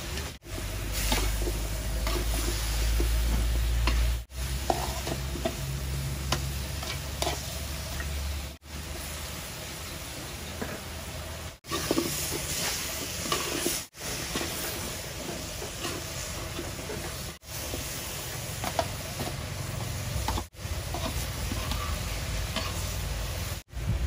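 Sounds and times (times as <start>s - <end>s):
sweet potato sizzling in a pan: 0.0s - 23.8s
spatula scraping a pan: 0.9s - 8.2s, 11.6s - 23.1s.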